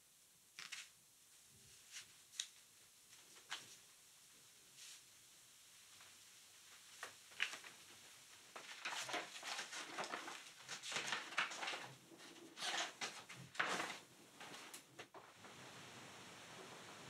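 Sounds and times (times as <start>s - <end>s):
notebook pages rustling: 7.0s - 15.2s.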